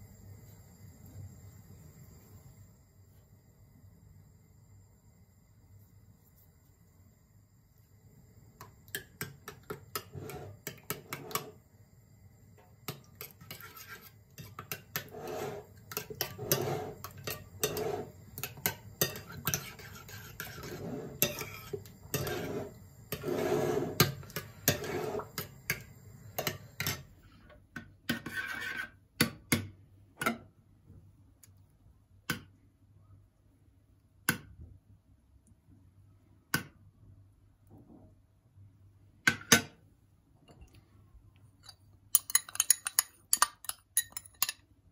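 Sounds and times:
spoon stirring yogurt in bowl: 8.6s - 11.6s, 12.7s - 27.1s, 41.4s - 44.7s
spoon clinking on bowl: 41.6s - 44.6s.

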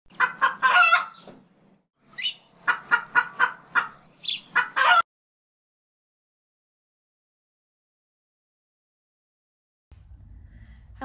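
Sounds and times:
chicken squawking and clucking: 0.1s - 1.2s, 2.2s - 5.0s.

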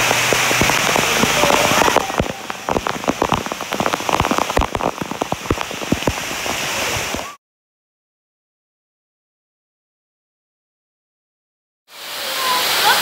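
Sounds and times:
heavy drops splattering on water: 0.0s - 7.3s
water pouring into a pool: 0.0s - 7.4s, 11.9s - 13.0s.

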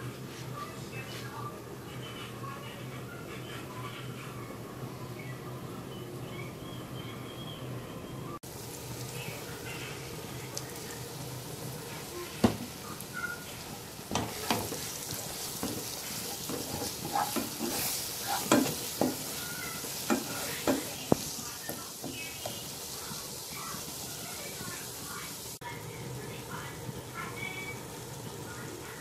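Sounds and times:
onion frying in a pan: 8.4s - 29.0s
spatula knocking on pan: 12.4s - 12.7s, 14.1s - 22.7s
spatula scraping a pan: 13.3s - 24.7s.

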